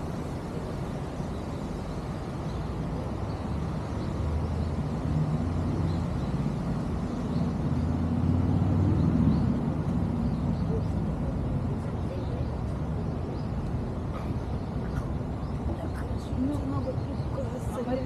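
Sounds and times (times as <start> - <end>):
traffic rumble: 0.0 - 18.0
heavy vehicle passing: 3.6 - 12.2.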